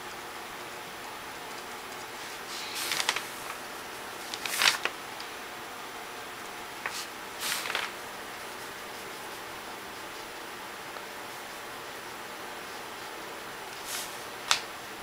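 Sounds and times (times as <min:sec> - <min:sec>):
faint steady hiss: 0:00.0 - 0:15.0
rustling scrapes of art supplies: 0:02.2 - 0:03.6, 0:06.8 - 0:08.0, 0:13.8 - 0:14.3.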